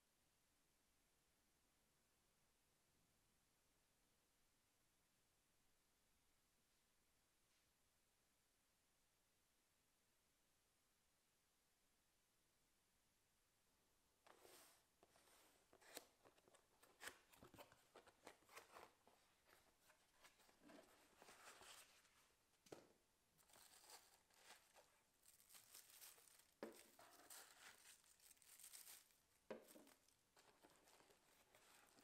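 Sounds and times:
cardboard scraping and creaking: 14.3s - 22.2s, 23.4s - 32.0s
plastic wrapping crinkling: 23.4s - 32.0s.

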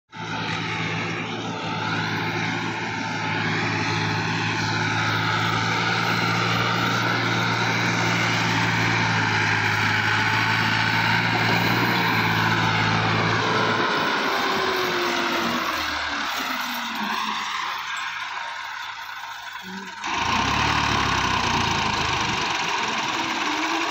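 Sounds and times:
diesel tractor engines droning: 0.0s - 23.9s.

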